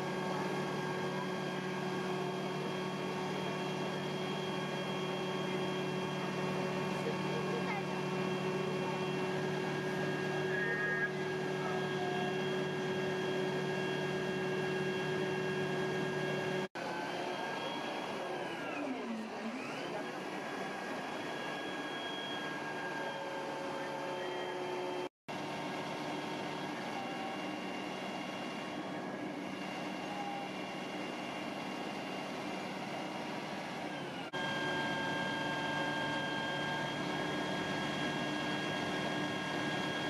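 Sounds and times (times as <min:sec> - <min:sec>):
truck engine and hydraulics hum: 0:00.0 - 0:40.0.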